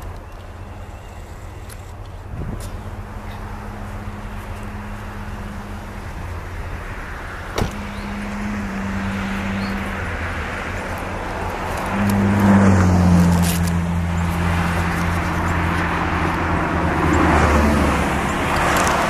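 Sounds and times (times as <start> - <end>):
distant diesel locomotive engine: 0.0 - 13.2
road vehicle passing: 0.0 - 19.0.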